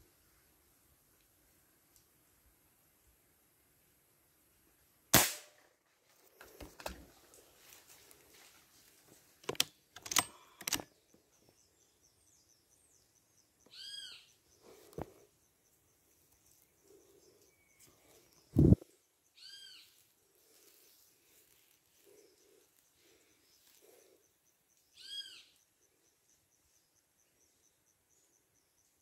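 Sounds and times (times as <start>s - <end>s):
air rifle shot: 5.1s - 5.6s.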